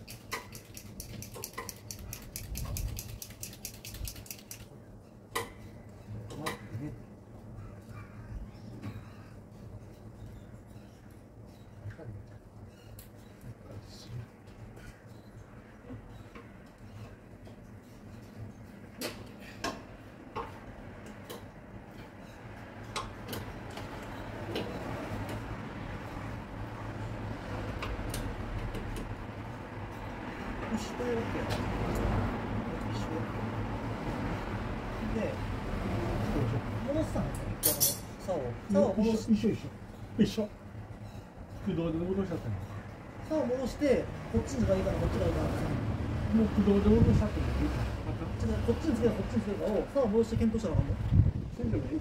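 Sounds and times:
small metallic clicks: 0.0 - 4.7.

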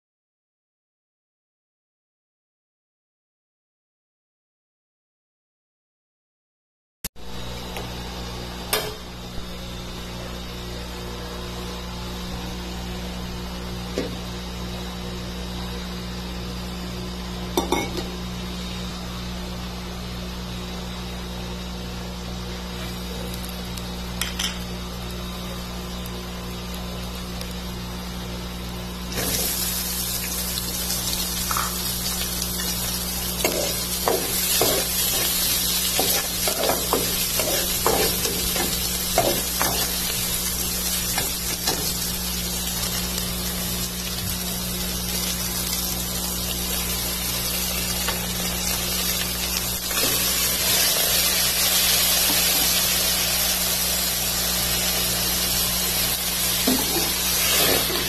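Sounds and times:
onion sizzling in hot oil: 22.6 - 58.0.

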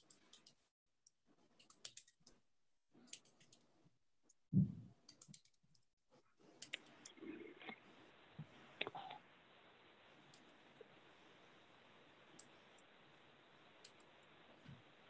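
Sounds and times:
faint clicks and handling noises: 0.0 - 4.4, 5.0 - 9.2, 10.1 - 15.0
faint steady hiss: 6.4 - 15.0.

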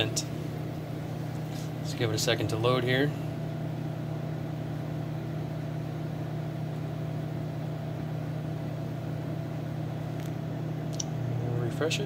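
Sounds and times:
microwave ovens humming: 0.0 - 12.0.

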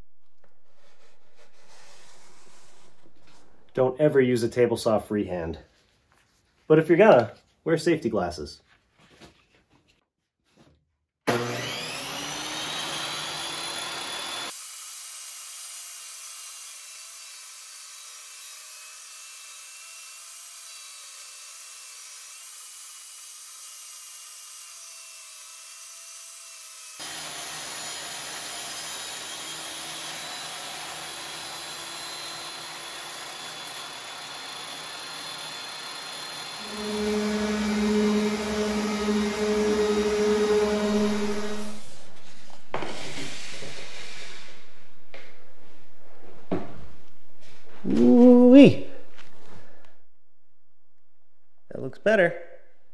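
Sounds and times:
orbital sander humming: 11.3 - 14.5, 33.6 - 43.6
saw ripping wood trim: 11.3 - 43.8
table saw whining: 11.3 - 45.3.

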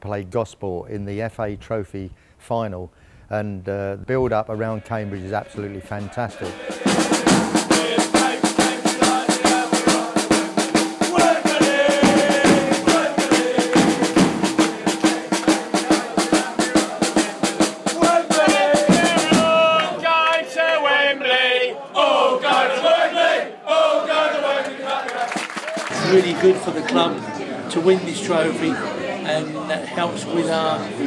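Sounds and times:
crowd singing and chanting: 4.5 - 31.0
snare and bass drum beating: 6.5 - 20.0.

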